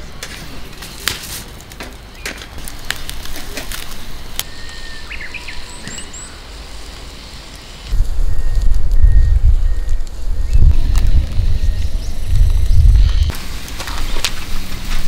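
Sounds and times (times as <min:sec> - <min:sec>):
fire popping: 0:00.0 - 0:15.0
wood fire crackling: 0:00.0 - 0:15.0
small birds chirping: 0:04.4 - 0:07.7
bird whistling: 0:04.5 - 0:06.6, 0:08.2 - 0:10.8.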